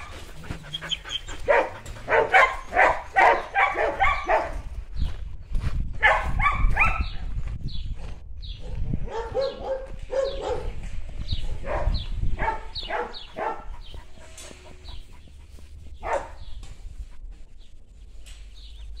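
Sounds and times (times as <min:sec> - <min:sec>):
dogs barking and yipping: 0:00.0 - 0:04.8, 0:06.0 - 0:07.2, 0:08.6 - 0:17.5.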